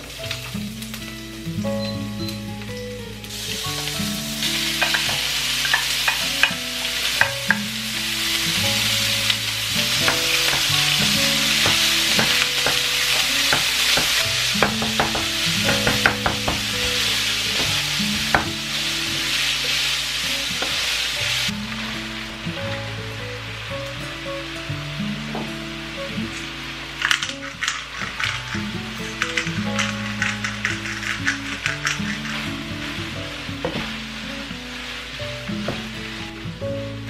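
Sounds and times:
meat sizzling in a frying pan: 0.0s - 37.0s
wooden spatula tapping and scraping pan: 9.7s - 18.7s.

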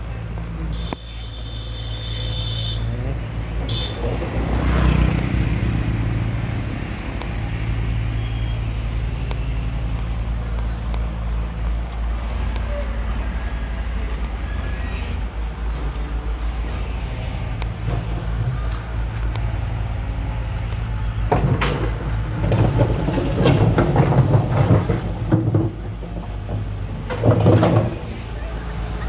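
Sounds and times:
motorbike passing: 2.8s - 10.8s.

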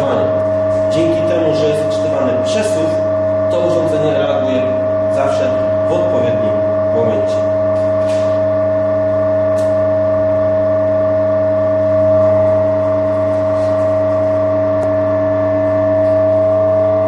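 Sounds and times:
hydraulic power unit whining: 0.0s - 17.0s.

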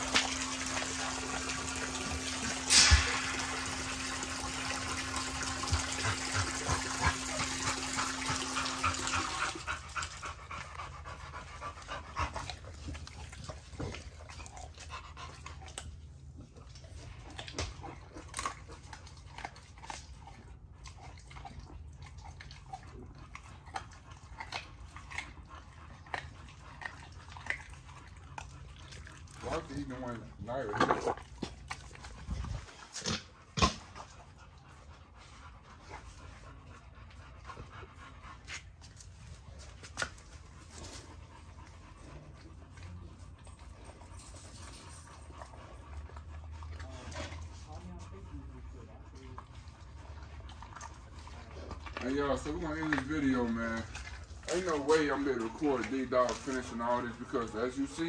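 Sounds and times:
dogs chewing meat: 0.0s - 58.0s.

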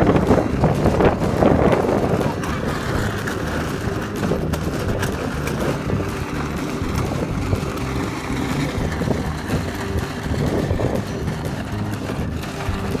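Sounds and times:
plastic toy wheels rolling on asphalt: 0.0s - 13.0s.

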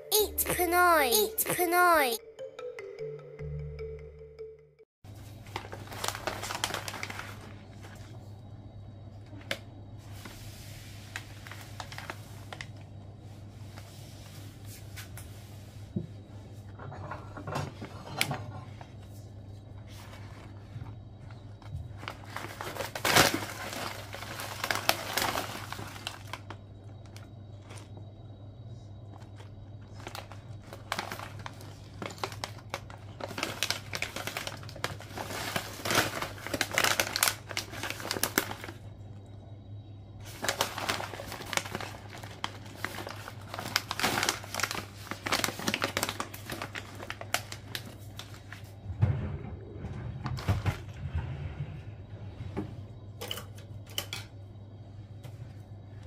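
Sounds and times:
plastic snack bag crinkling: 5.5s - 8.0s, 22.1s - 26.5s, 30.0s - 38.8s, 40.3s - 48.3s.

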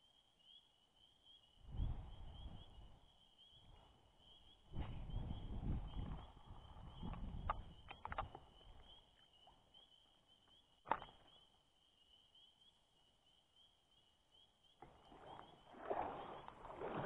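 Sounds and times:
light clicks: 7.0s - 8.9s.

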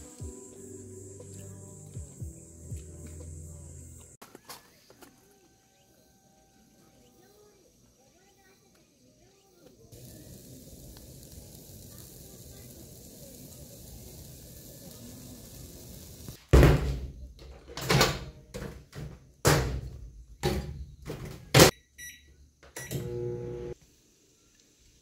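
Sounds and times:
loud short thumps: 16.6s - 17.2s.

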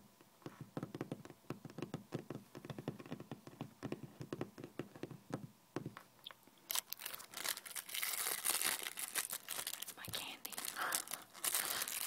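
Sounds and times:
candy wrapper crumpling: 6.6s - 12.0s.

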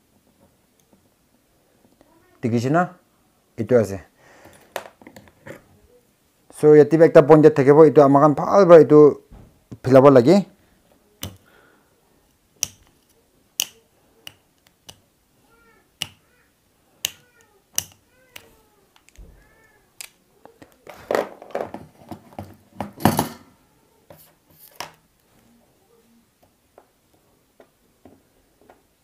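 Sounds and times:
clicks and taps of small tools: 12.6s - 15.0s, 17.0s - 19.2s
cat meowing faintly: 17.2s - 20.6s.

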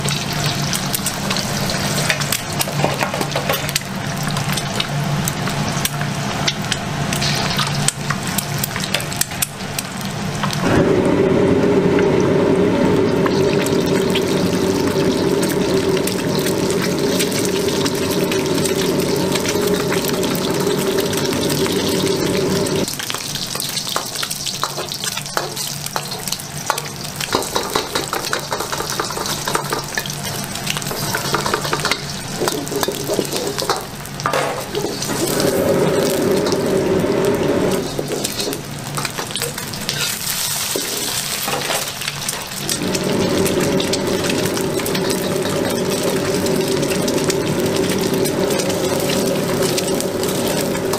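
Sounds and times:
eggs sizzling in oil: 0.0s - 50.9s
steady low hum: 10.6s - 22.9s, 42.6s - 50.9s.

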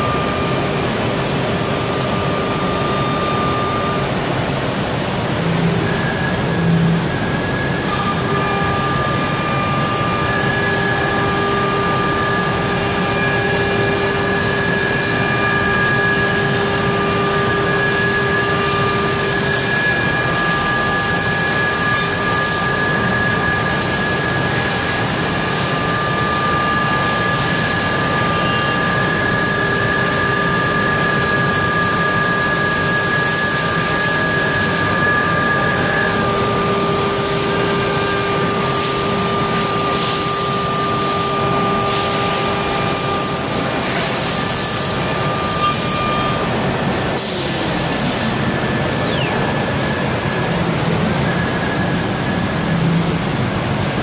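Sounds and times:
router spindle high whine: 0.0s - 53.9s.

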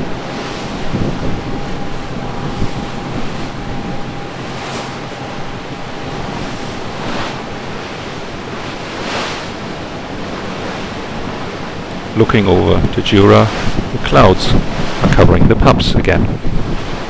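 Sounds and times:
faint steady tone: 0.0s - 11.2s
sea water rushing along hull: 0.0s - 17.0s
wind buffeting microphone: 0.0s - 17.0s.

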